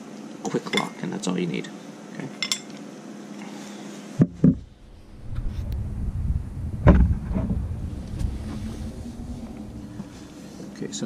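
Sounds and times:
loud bump: 4.2s - 10.8s
wind buffeting microphone: 4.3s - 11.0s
sharp knocks: 6.8s - 7.6s.

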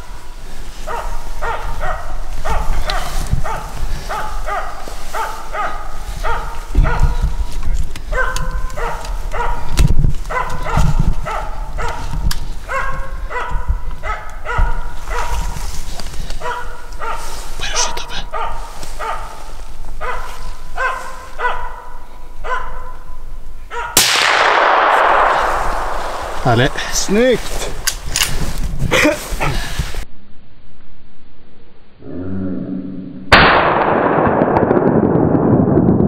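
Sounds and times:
dog barking: 0.8s - 7.4s, 8.1s - 15.6s, 16.4s - 24.0s
gunshot with echo: 24.0s - 27.6s, 33.3s - 35.8s.

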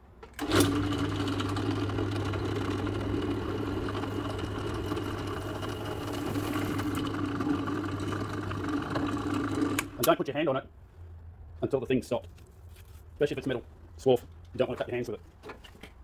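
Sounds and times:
drill press switched on: 0.2s - 10.2s
electric motor humming: 0.4s - 10.0s.

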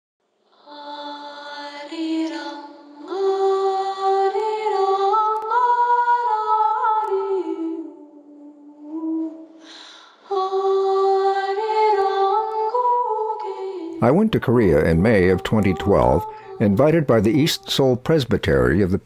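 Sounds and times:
person singing unaccompanied: 10.3s - 19.0s.

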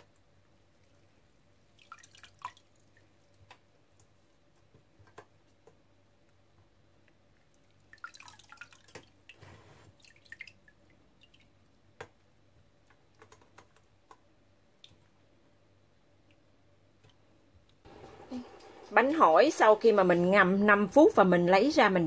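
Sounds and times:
water dripping and trickling: 0.8s - 4.2s, 7.0s - 12.2s.

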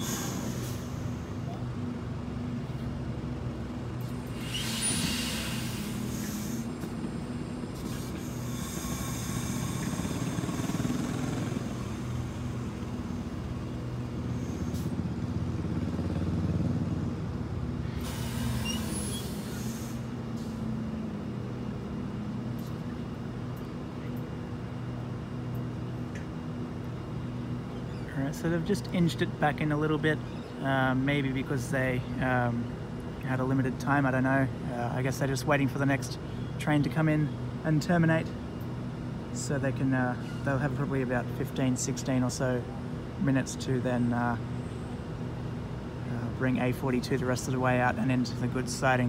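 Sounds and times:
air brakes hissing: 0.0s - 1.5s, 4.2s - 7.0s, 7.8s - 15.0s, 17.8s - 20.6s
diesel locomotive engines humming: 0.0s - 49.0s.

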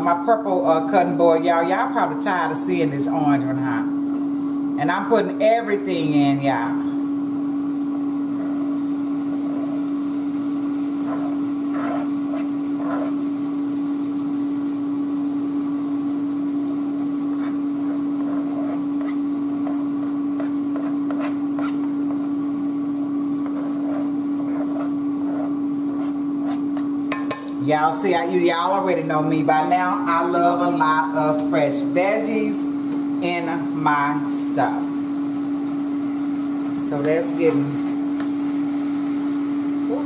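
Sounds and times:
steady mechanical motor hum: 0.0s - 40.0s
spoon scraping cutting board: 11.0s - 13.2s, 17.3s - 22.3s, 23.4s - 27.5s.

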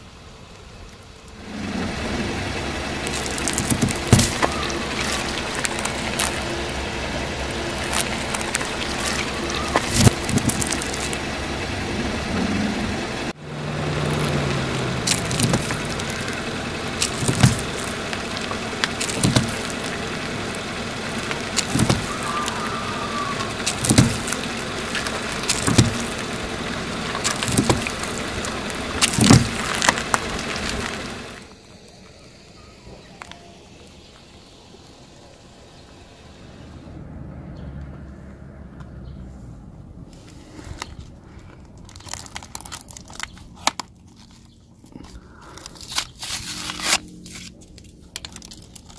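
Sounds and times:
car engine and tyre noise: 0.0s - 48.9s
juice pouches bursting: 2.9s - 11.3s, 13.4s - 31.5s, 40.7s - 48.9s.

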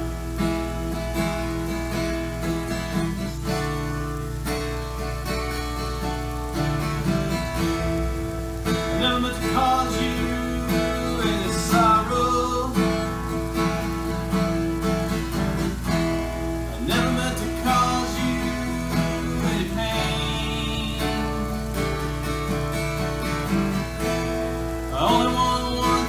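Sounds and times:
acoustic guitar strumming: 0.0s - 26.0s
man singing: 8.0s - 13.2s, 16.7s - 21.8s, 24.9s - 26.0s.

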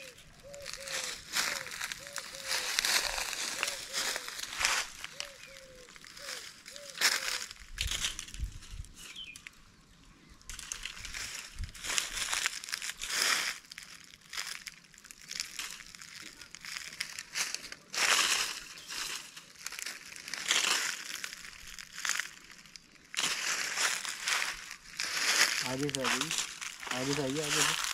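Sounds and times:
footsteps crunching dry leaves: 0.0s - 9.5s, 10.3s - 27.9s
metal detector coil sweeping leaves: 0.6s - 8.4s, 10.5s - 13.7s, 17.0s - 22.3s, 23.1s - 27.9s.

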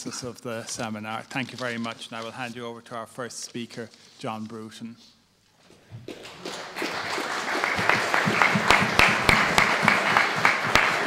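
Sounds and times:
audience applauding: 6.1s - 11.0s.

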